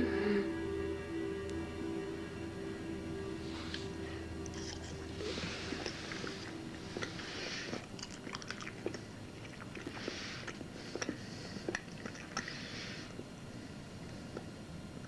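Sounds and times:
chewing crunches: 0:05.7 - 0:12.6.

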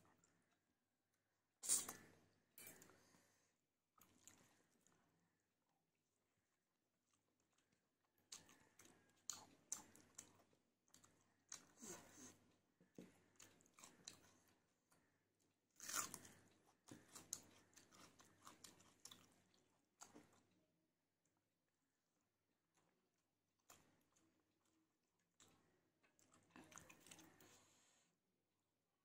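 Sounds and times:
person chewing food: 0:04.0 - 0:05.4, 0:06.1 - 0:20.6, 0:22.6 - 0:27.7.

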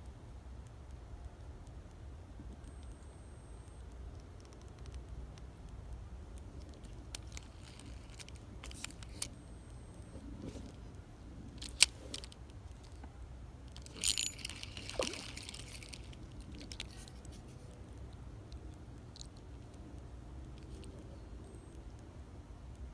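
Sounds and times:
fishing reel clicks and clinks: 0:07.1 - 0:09.3, 0:13.7 - 0:17.0.

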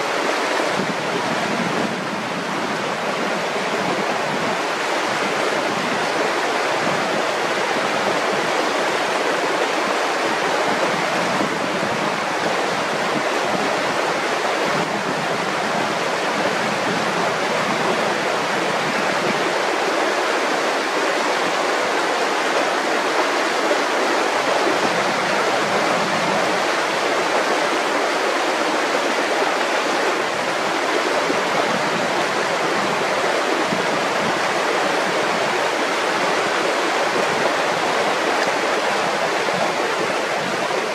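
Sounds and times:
river rushing over rocks: 0:00.0 - 0:40.9.

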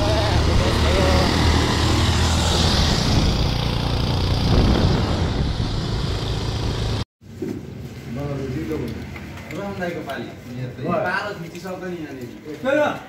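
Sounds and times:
motorcycle engine running: 0:00.0 - 0:07.0
wind rushing over microphone: 0:00.6 - 0:07.0.

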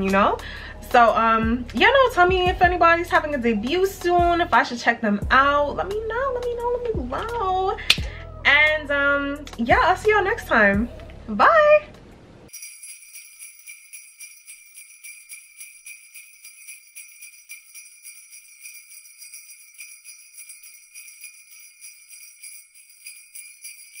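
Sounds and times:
sleigh bells jingling: 0:12.5 - 0:24.0.

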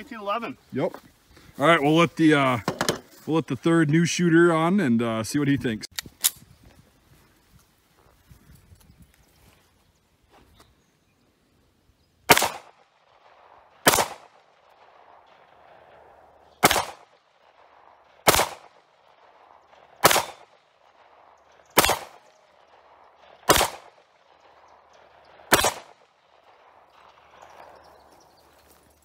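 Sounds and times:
pistol shots: 0:12.3 - 0:27.9.

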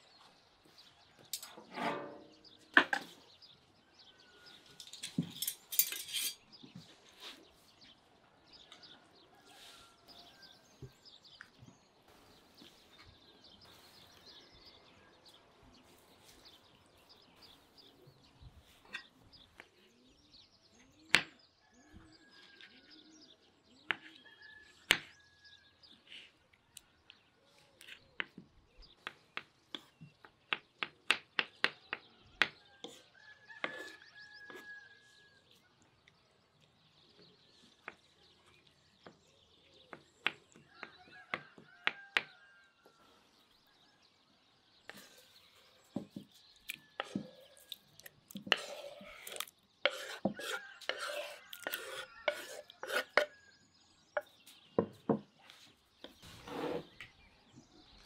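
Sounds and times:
birds chirping: 0:00.0 - 0:58.0
kitchen utensils clinking: 0:04.8 - 0:06.4.

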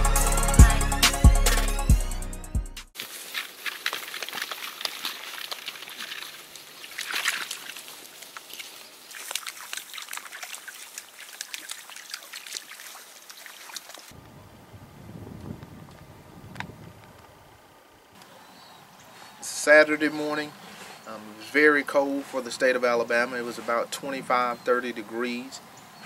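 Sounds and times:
water splash: 0:03.0 - 0:14.2
water trickling in stream: 0:03.0 - 0:14.2.

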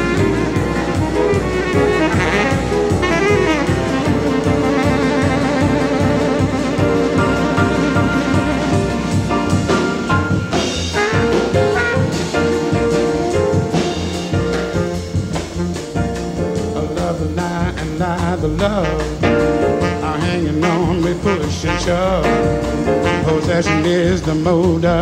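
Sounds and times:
saxophone and trumpet lines: 0:00.0 - 0:25.0
soul-jazz band playing: 0:00.0 - 0:25.0
man singing: 0:16.5 - 0:25.0.

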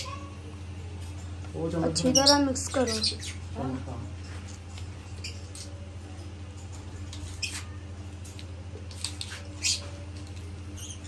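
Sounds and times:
steady low hum: 0:00.0 - 0:11.0
lovebirds chirping and squeaking: 0:01.2 - 0:03.8, 0:04.5 - 0:05.9, 0:06.7 - 0:11.0.

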